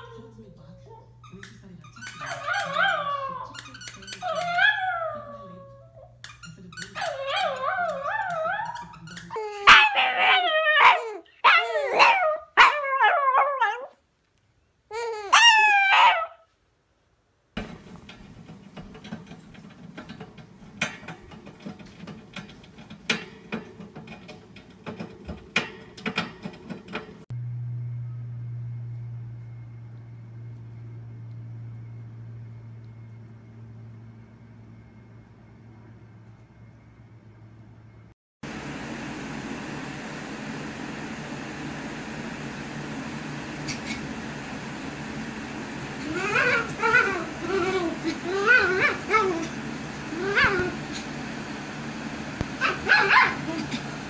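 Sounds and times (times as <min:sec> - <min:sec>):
small dogs howling and yipping: 0:02.2 - 0:03.6, 0:04.2 - 0:06.1, 0:07.0 - 0:14.0, 0:15.2 - 0:16.4, 0:46.0 - 0:50.8, 0:52.6 - 0:53.8
low steady hum: 0:26.9 - 0:38.1.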